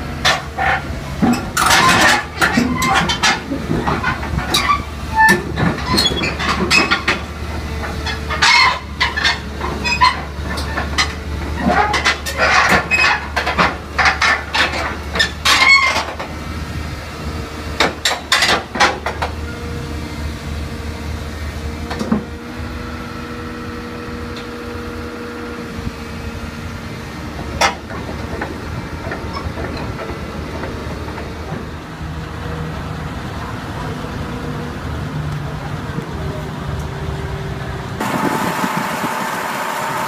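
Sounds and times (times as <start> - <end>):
steel tracks clanking: 0.0 - 23.4, 25.7 - 40.0
excavator diesel engine running: 0.0 - 40.0.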